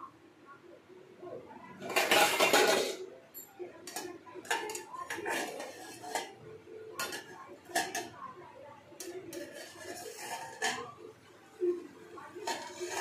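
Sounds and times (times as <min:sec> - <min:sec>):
pot lid rattling: 0:01.8 - 0:03.0, 0:09.4 - 0:11.0.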